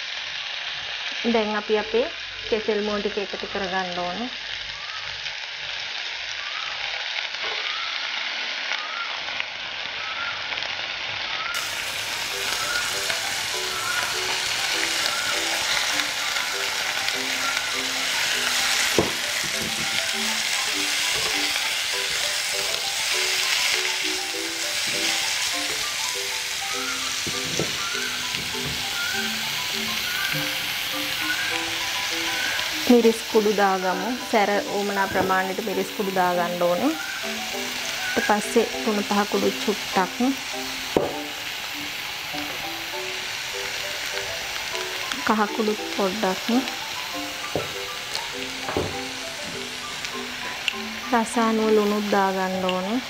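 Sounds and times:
oil sizzling in a pan: 0.0 - 53.0
soft background music: 11.6 - 53.0.

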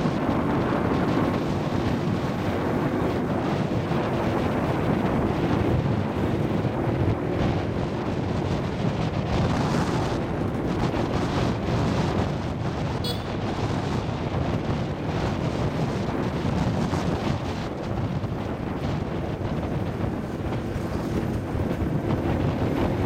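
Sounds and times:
wind buffeting microphone: 0.0 - 23.0
motorcycle engine running: 13.0 - 13.8.

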